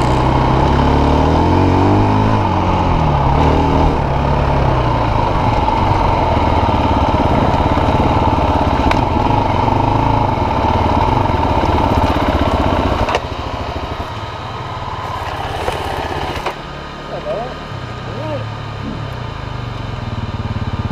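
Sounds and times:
motorcycle engines idling: 0.0s - 0.8s, 2.7s - 20.9s
motorcycle engines running: 0.0s - 20.9s.

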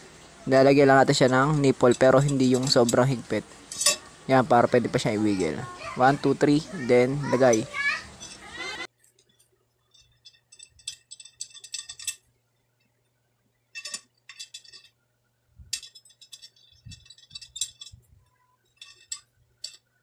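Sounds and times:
metal spokes clinking on wheel rim: 0.5s - 5.1s, 6.1s - 8.9s, 9.8s - 12.3s, 13.7s - 15.0s, 15.7s - 20.0s.

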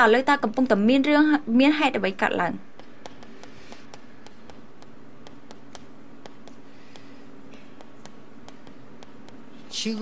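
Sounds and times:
steady low hum: 0.0s - 10.0s
chalk tapping on blackboard: 2.6s - 9.7s.

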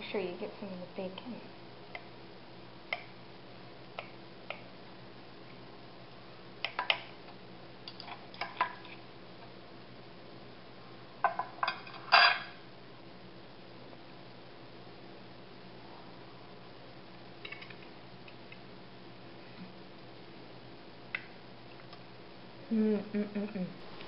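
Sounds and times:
cutlery clinking on a plate: 11.3s - 12.5s.

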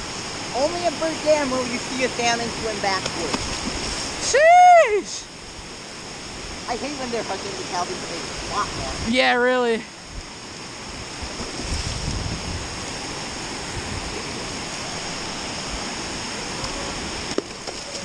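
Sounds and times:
water rushing over spillway: 0.0s - 18.0s
wind buffeting microphone: 5.6s - 9.2s, 10.0s - 18.0s.

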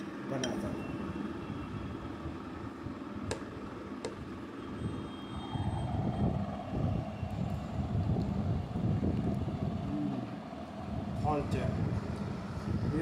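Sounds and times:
steady low rumble: 5.8s - 13.0s.

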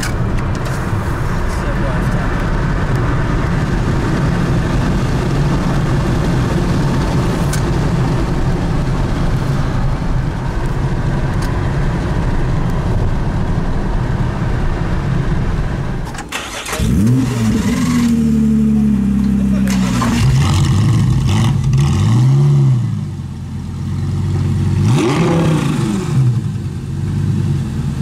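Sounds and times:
tyre and wind rumble: 0.0s - 18.0s
sports car engine revving and idling: 16.7s - 28.0s.

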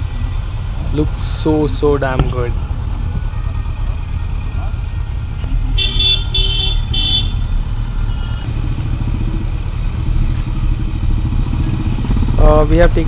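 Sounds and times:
motorcycle engine low rumble: 0.0s - 13.0s.

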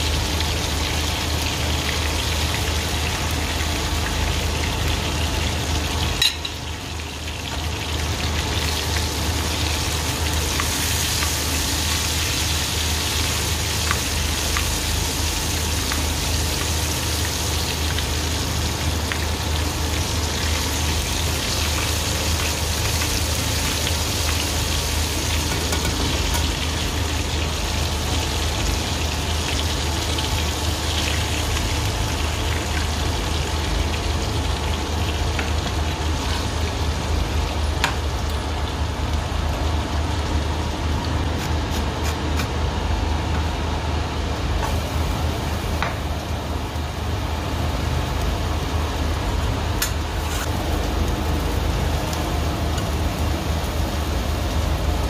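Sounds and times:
food sizzling in a pan: 0.0s - 39.6s, 44.6s - 55.0s.

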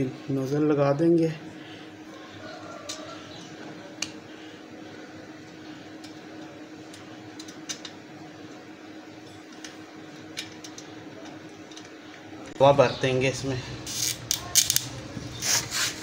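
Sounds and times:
steady low hum: 0.0s - 16.0s
small metal parts clicking: 13.9s - 14.9s.

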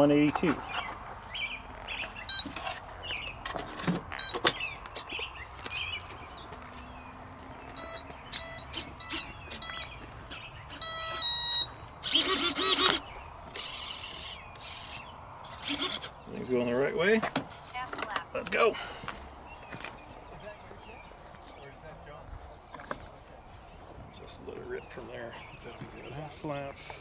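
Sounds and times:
electronic beeps through motor: 2.3s - 2.5s, 4.2s - 4.5s, 7.8s - 9.9s, 10.7s - 12.9s
motor whirring bursts: 7.8s - 9.9s, 10.7s - 16.1s.

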